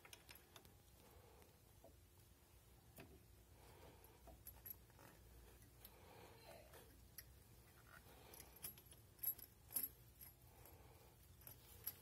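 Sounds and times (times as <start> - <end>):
faint metallic clicks and clinks: 0.0 - 0.8, 3.8 - 12.0.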